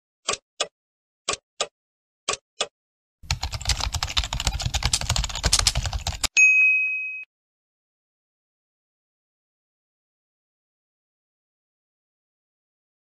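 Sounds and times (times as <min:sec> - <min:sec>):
countdown ticks: 0:01.3 - 0:01.7
rapid keyboard typing: 0:03.2 - 0:06.4
bright ding: 0:06.4 - 0:07.3.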